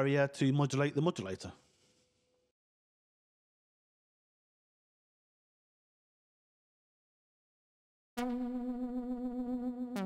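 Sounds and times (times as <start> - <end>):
buzzy synthesizer note: 8.2 - 10.0.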